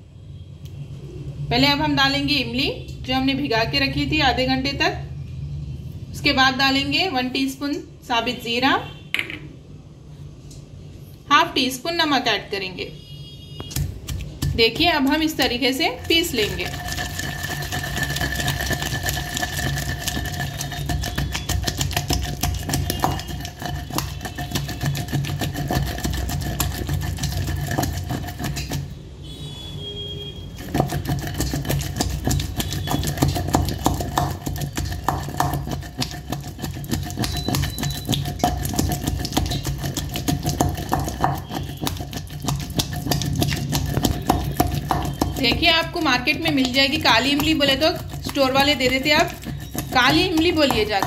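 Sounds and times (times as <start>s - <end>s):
pestle pounding in stone mortar: 13.6s - 29.0s, 30.6s - 51.0s
wet squishing: 13.6s - 29.0s, 30.6s - 51.0s.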